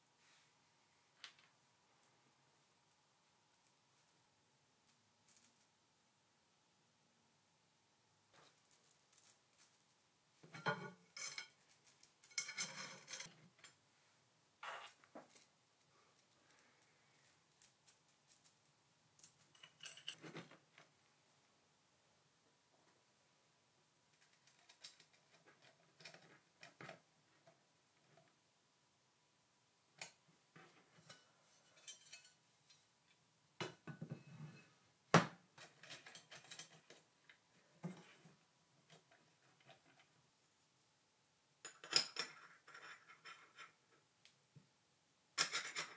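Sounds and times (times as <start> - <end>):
metal clicks and clinks: 19.2 - 20.2.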